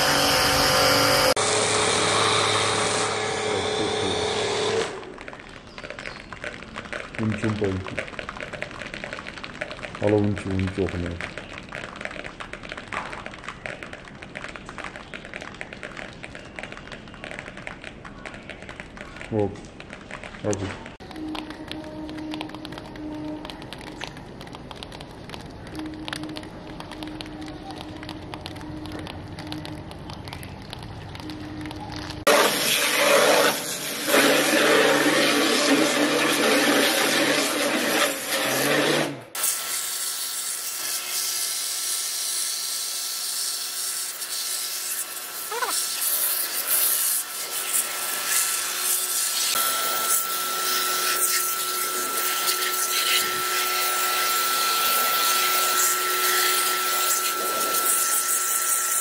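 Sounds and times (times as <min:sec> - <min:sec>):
cleaning machine hissing: 0:00.0 - 0:05.0, 0:32.3 - 0:59.0
steady whine: 0:00.0 - 0:05.0, 0:47.3 - 0:59.0
faint crackling ticks: 0:05.2 - 0:32.2
low machine hum: 0:20.8 - 0:32.2, 0:48.0 - 0:59.0.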